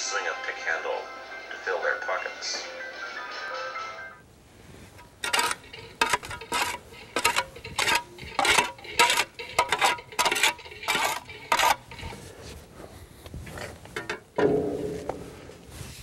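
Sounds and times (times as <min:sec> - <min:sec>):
slow uneven footsteps: 0:04.4 - 0:16.0.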